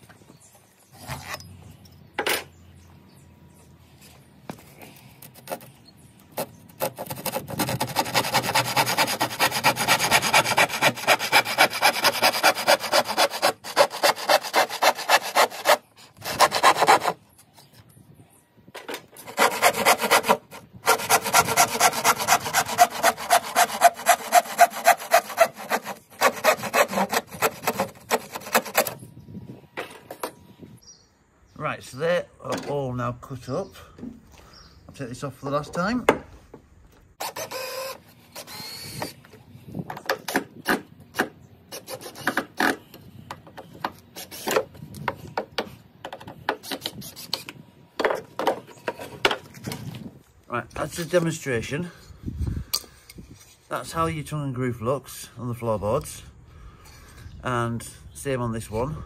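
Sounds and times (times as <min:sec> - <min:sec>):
hand saw cutting wood: 0:06.4 - 0:17.2, 0:19.2 - 0:29.0, 0:37.2 - 0:39.0, 0:41.7 - 0:42.8.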